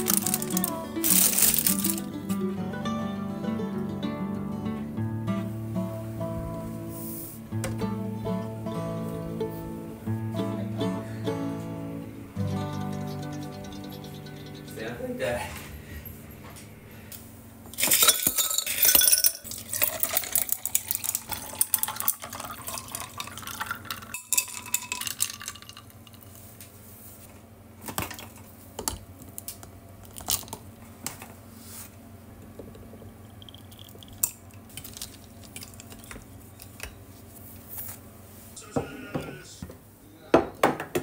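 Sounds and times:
coffee pouring over ice: 0.0s - 2.1s, 17.8s - 26.3s, 33.3s - 36.4s
ice cubes clattering into glasses: 0.0s - 2.1s, 17.8s - 26.3s
glass clinks: 12.5s - 14.8s, 17.8s - 19.5s.

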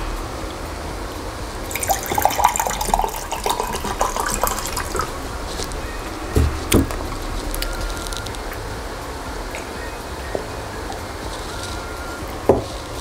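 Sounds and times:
water pouring into paper cup: 1.6s - 5.9s
dull thumps: 4.9s - 12.9s.

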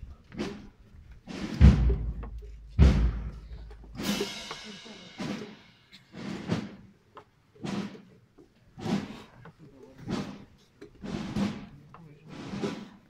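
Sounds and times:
marching drums: 0.4s - 6.9s, 7.6s - 8.1s, 8.8s - 9.3s, 10.0s - 13.0s
bass drum booms: 1.5s - 5.6s.

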